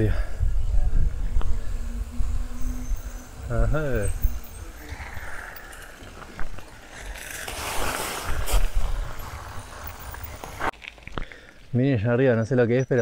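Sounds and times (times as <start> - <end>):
wind rumble on microphone: 0.0 - 7.4
bicycle tyres rolling: 0.0 - 12.9.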